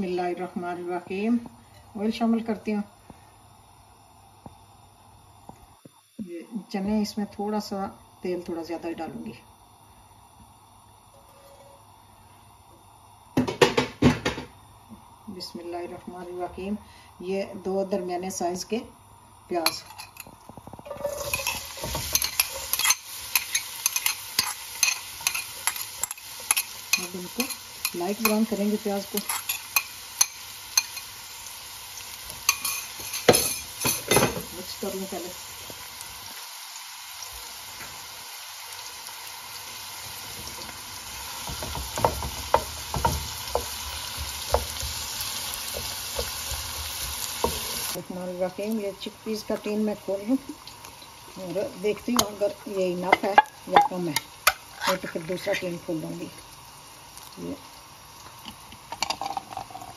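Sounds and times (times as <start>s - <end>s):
onions sizzling in hot oil: 0.0s - 59.9s
wooden spoon scraping a wok: 19.7s - 28.4s, 41.5s - 48.0s.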